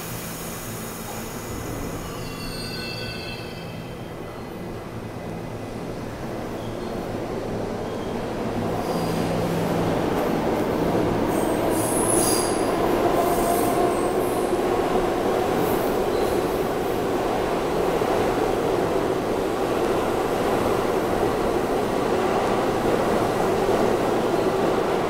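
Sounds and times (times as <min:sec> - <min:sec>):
subway train rumbling: 0:00.0 - 0:25.0
wheel squeal: 0:02.0 - 0:03.9.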